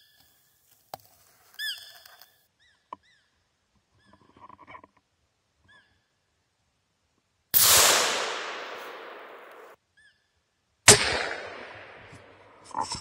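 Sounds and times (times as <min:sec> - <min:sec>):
rifle shots echoing: 0:07.6 - 0:09.8, 0:10.9 - 0:12.6.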